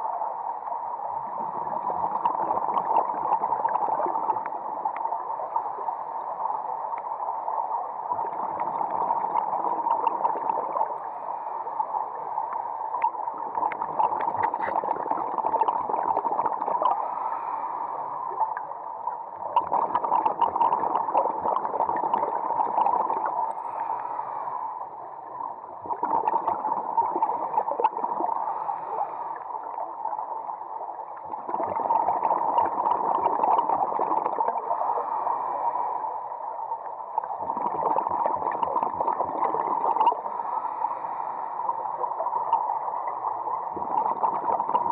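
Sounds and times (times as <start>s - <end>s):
underwater bubble bursts: 1.1s - 5.8s, 8.1s - 11.1s, 12.9s - 17.1s, 19.4s - 23.5s, 25.2s - 28.7s, 31.0s - 34.8s, 37.0s - 40.3s, 41.7s - 44.9s.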